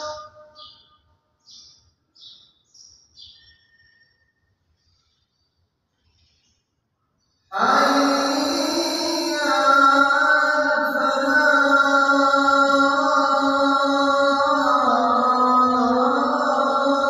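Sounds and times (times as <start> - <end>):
person singing long held notes: 7.5 - 17.0.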